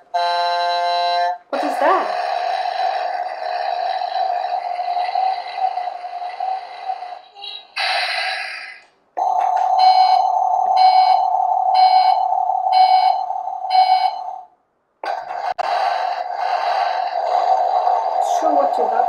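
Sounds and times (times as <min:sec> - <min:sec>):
toy buzzing tone: 0:00.1 - 0:06.6
electronic beeps: 0:09.2 - 0:14.5.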